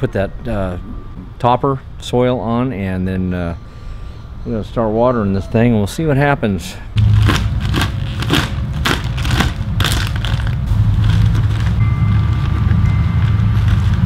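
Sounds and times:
steady low rumble: 6.9 - 14.0
plastic bag crinkling: 7.0 - 14.0.

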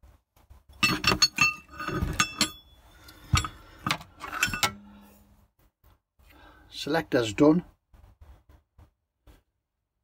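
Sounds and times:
metal parts clinking: 0.8 - 5.3.

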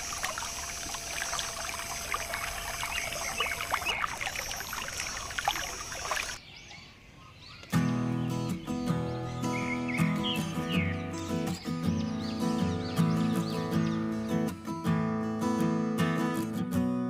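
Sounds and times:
water trickling and splashing: 0.0 - 6.4.

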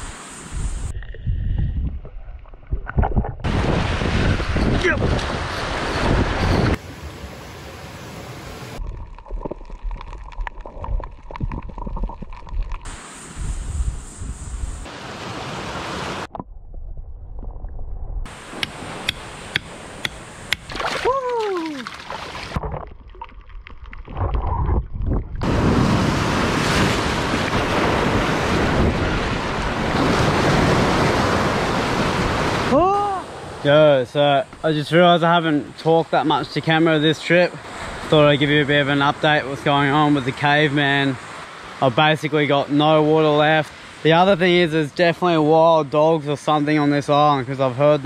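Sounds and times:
dull underwater wash: 0.0 - 4.7, 5.3 - 33.6
wind buffeting microphone: 0.0 - 6.8, 10.6 - 14.9, 24.0 - 32.7
underwater gurgling and bubbles: 0.6 - 3.8, 8.8 - 14.0, 21.9 - 25.6
low underwater rumble: 0.7 - 3.8, 8.8 - 12.9, 16.3 - 18.3, 22.5 - 25.5
surf breaking on rocky shore: 3.4 - 6.8, 25.4 - 33.7.

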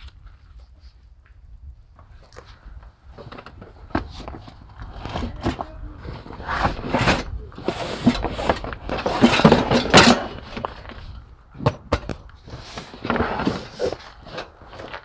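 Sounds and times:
fabric bags rustling and scraping: 3.1 - 11.2, 12.4 - 15.0.

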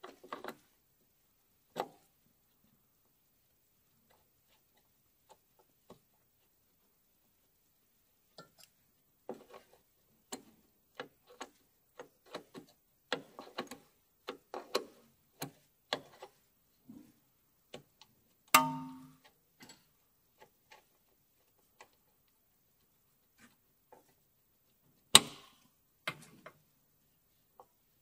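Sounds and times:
ringing metal clank: 18.6 - 19.2.

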